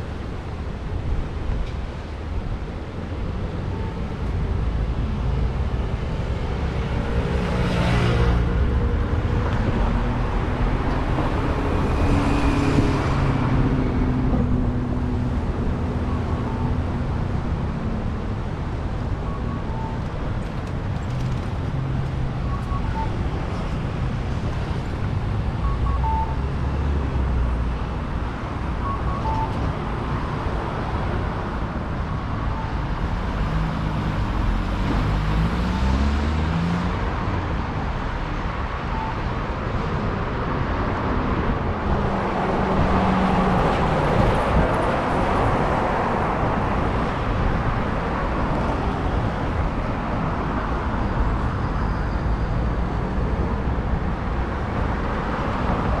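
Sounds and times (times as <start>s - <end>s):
road traffic rumbling: 0.0s - 56.0s
vehicles passing close: 0.0s - 56.0s.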